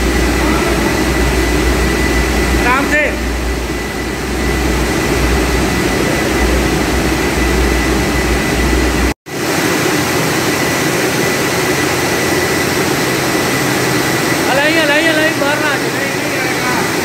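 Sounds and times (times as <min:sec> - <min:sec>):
deep hum: 0:00.0 - 0:09.2
production line machinery noise: 0:00.0 - 0:17.0.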